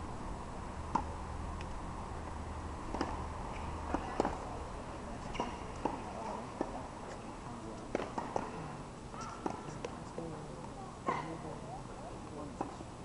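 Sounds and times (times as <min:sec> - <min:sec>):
low background hum: 0:00.0 - 0:13.0
tennis balls hit by rackets: 0:00.9 - 0:01.7, 0:02.8 - 0:04.6, 0:05.2 - 0:07.2, 0:07.8 - 0:08.6, 0:09.4 - 0:10.0, 0:12.6 - 0:12.8.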